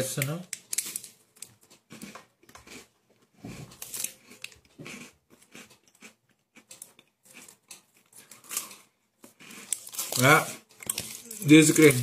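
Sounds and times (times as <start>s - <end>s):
biscuit crunching: 0.6s - 12.0s
wrapper crinkling: 9.7s - 12.0s.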